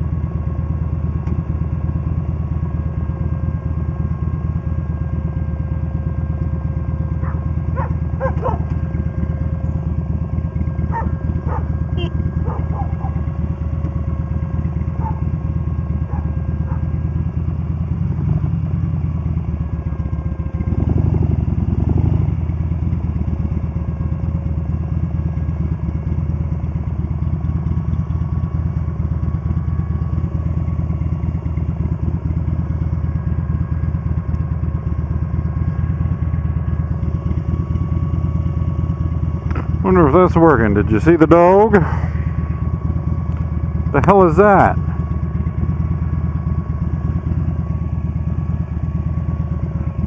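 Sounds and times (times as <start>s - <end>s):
motorcycle engine running: 0.0s - 50.0s.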